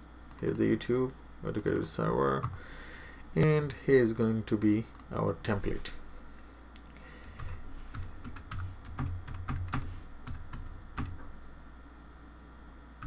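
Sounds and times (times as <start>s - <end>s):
keyboard typing: 7.2s - 11.2s.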